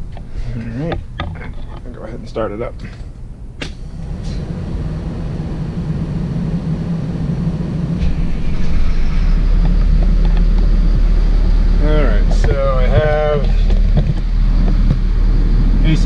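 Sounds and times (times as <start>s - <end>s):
diesel engine starting and idling: 3.7s - 16.0s.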